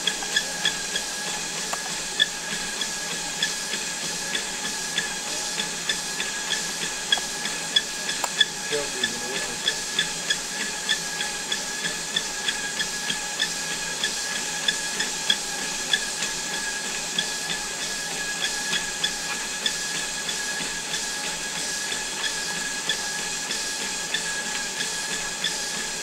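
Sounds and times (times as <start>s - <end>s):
treadmill motor whine and belt hiss: 0.0s - 26.0s.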